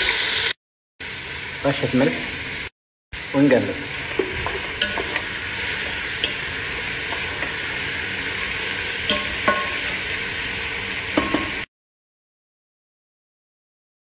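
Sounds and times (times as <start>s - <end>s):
onions sizzling in oil: 0.0s - 11.7s
wooden spatula knocking on pot: 4.1s - 7.6s, 9.1s - 9.9s, 11.2s - 11.6s.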